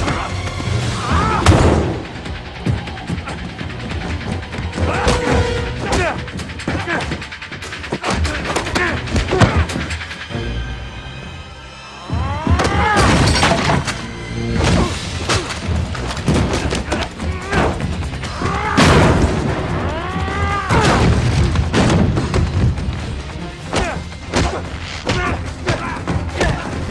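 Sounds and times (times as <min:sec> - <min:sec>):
dramatic orchestral score: 0:00.0 - 0:26.9
heavy thuds and crashes: 0:20.7 - 0:23.0
punches: 0:23.7 - 0:26.9.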